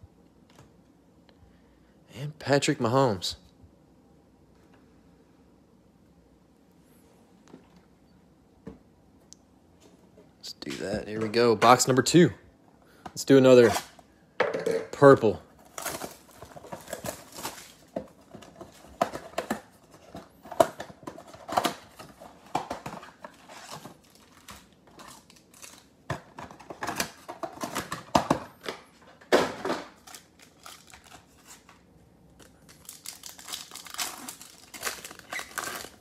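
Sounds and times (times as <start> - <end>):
foil wrappers crinkling and tearing: 15.6 - 28.0, 30.0 - 31.8, 32.4 - 36.0.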